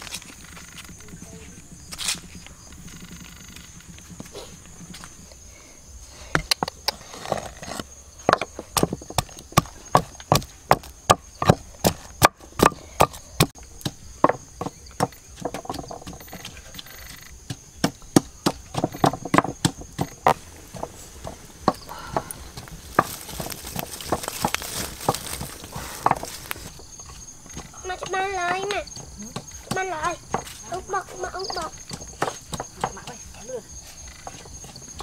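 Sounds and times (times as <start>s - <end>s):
pestle pounding in wooden mortar: 6.3s - 33.4s.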